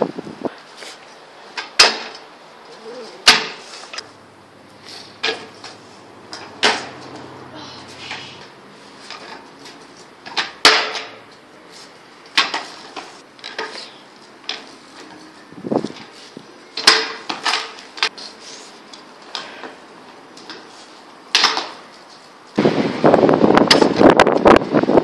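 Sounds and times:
scooter wheels rolling scrape: 4.7 - 25.0
scooter clacking on concrete: 5.1 - 11.5, 12.2 - 18.2.

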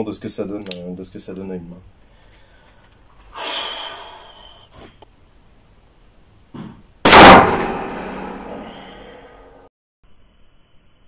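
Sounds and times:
soft breath-like rush: 2.0 - 5.0
revolver gunshot with reverberation: 7.1 - 8.5.

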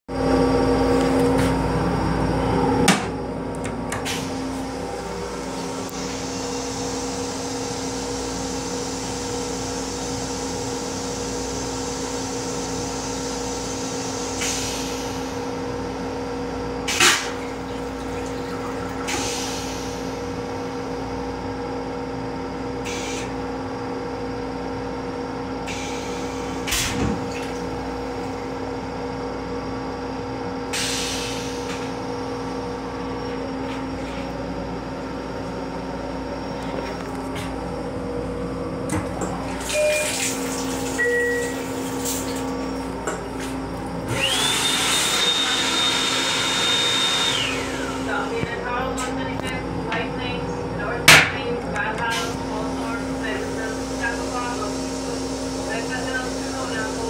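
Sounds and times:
steady hum: 0.1 - 14.4
toilet flushing rush: 3.8 - 21.0, 39.0 - 48.4.

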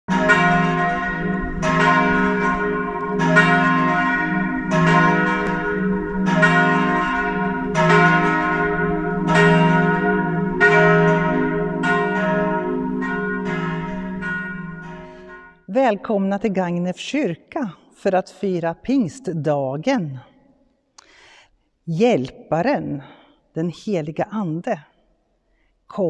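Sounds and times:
church bells ringing: 0.1 - 15.9.

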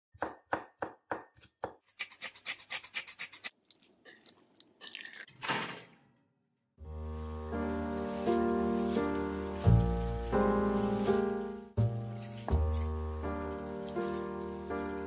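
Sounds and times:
knife chopping on wooden board: 0.2 - 1.8.

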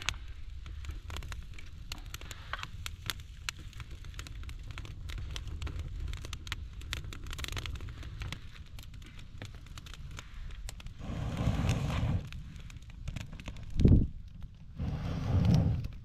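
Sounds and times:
campfire crackling: 0.0 - 16.0
breath blowing on fire: 10.1 - 14.0, 14.7 - 16.0.

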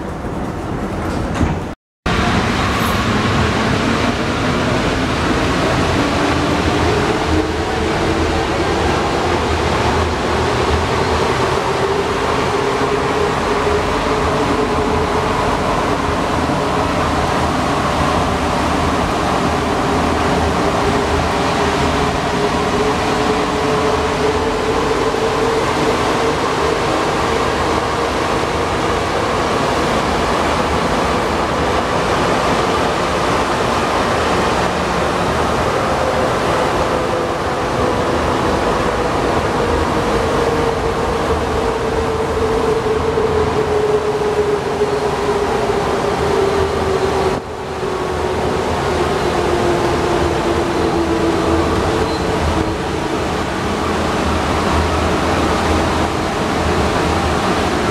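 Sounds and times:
metro train running in tunnel: 0.0 - 57.9.

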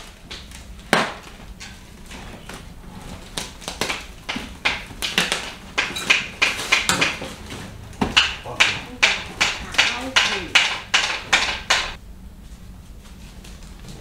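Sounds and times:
plastic wrap crackling: 0.0 - 10.5
box knocking against wooden slats: 3.8 - 12.0.

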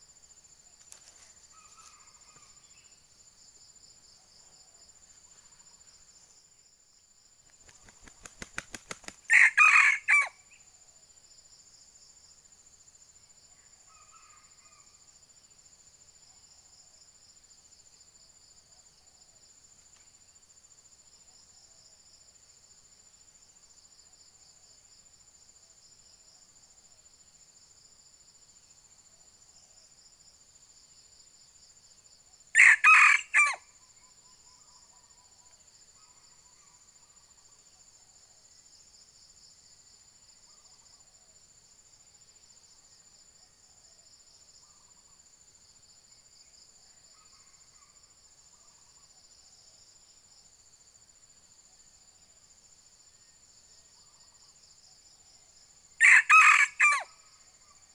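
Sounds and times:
high insect trill: 0.0 - 57.9
rooster crowing: 9.3 - 10.4, 32.6 - 33.6, 56.0 - 57.1.

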